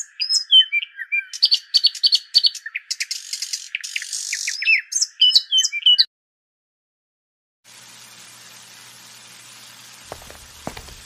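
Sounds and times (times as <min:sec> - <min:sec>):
small birds chirping: 0:00.0 - 0:06.1.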